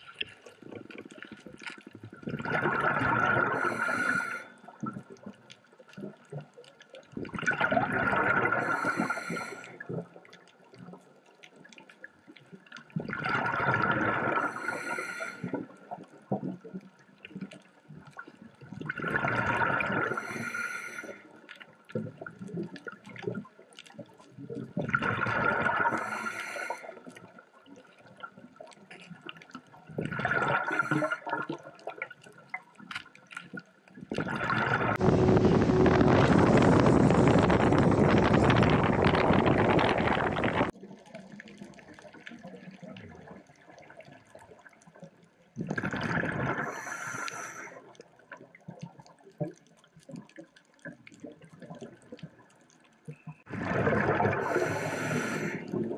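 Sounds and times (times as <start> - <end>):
underwater regulator bubbling: 0.0 - 6.5, 7.1 - 10.8, 12.9 - 21.2, 22.0 - 26.9, 28.6 - 32.6, 34.1 - 43.3, 45.6 - 47.7, 53.1 - 55.9.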